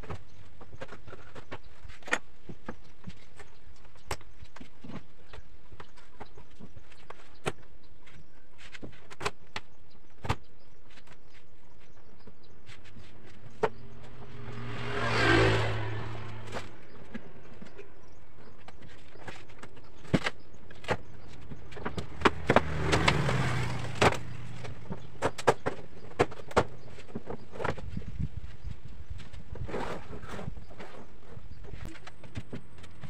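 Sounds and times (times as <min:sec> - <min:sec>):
passing vehicle engine hum: 0:13.7 - 0:18.3, 0:21.5 - 0:25.2.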